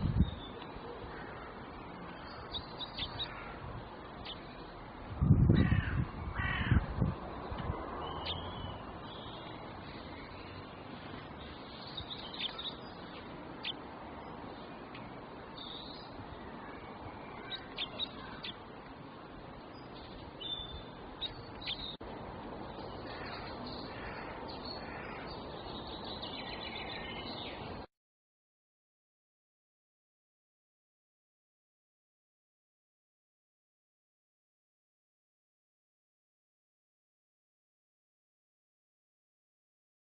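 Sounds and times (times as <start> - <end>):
small birds chirping faintly: 0.0 - 27.9
crow cawing: 1.1 - 1.6, 3.2 - 3.6, 5.6 - 6.8, 23.1 - 25.3.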